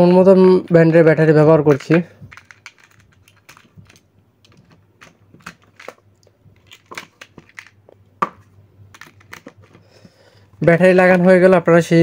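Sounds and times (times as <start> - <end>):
batteries clicking against plastic: 1.7 - 8.0, 8.9 - 9.8.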